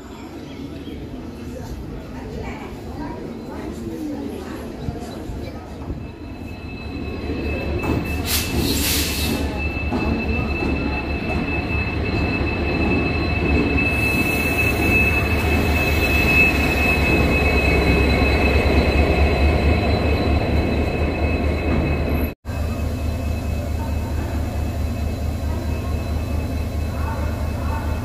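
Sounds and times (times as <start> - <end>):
train rumbling on rails: 0.2 - 28.0
high-pitched wheel squeal: 6.1 - 22.3.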